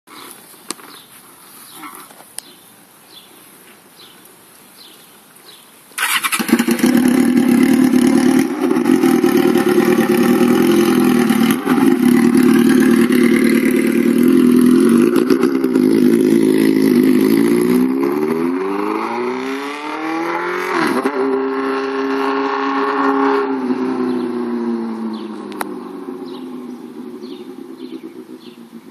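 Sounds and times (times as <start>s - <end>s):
loud motorcycle engine: 6.0s - 28.9s.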